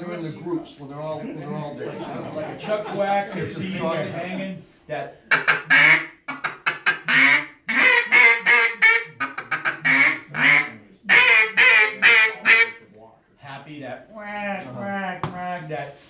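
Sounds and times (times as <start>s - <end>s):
duck call chuckles and quacks: 5.3s - 12.7s.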